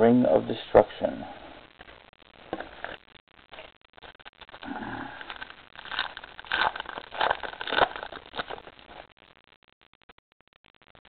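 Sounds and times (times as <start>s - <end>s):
cards and foil wrapper crinkling: 1.8s - 9.2s.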